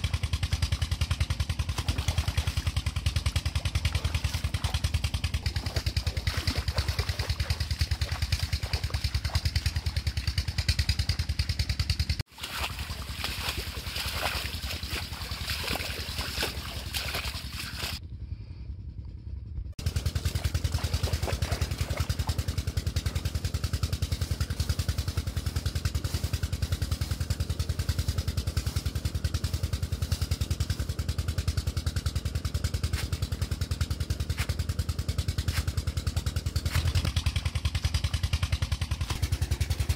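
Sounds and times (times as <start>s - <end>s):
diesel pump engine chugging: 0.0s - 39.9s.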